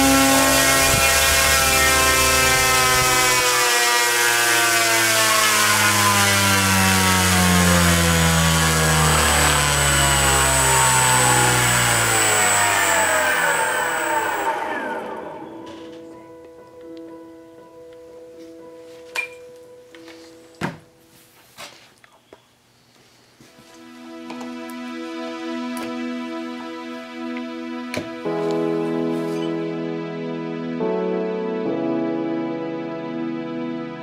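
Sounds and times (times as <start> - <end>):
electric motor whining: 0.0 - 16.1
propeller wash hissing: 7.1 - 14.6.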